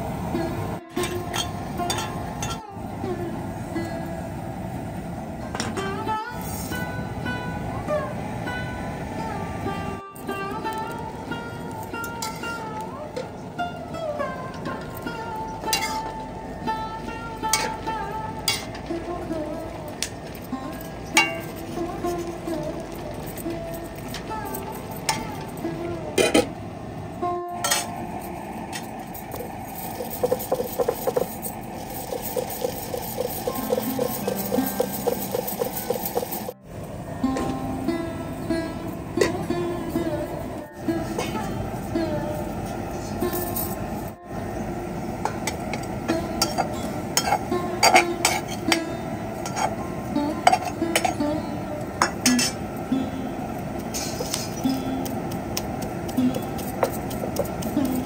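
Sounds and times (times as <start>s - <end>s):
metal cookware clinking and scraping: 1.0s - 2.6s, 12.0s - 12.6s, 15.7s - 16.2s, 18.5s - 18.9s, 20.4s - 22.3s, 27.6s - 36.6s, 46.4s - 48.8s, 49.4s - 49.8s, 52.0s - 52.7s, 53.8s - 55.3s
soft background music: 5.7s - 26.4s, 27.3s - 58.0s.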